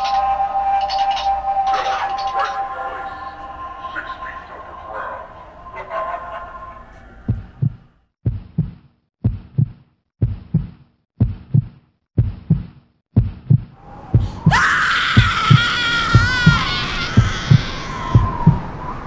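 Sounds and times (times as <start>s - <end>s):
long high-pitched scream: 0.0s - 5.9s, 13.8s - 19.0s
heartbeat thumps: 7.3s - 18.6s.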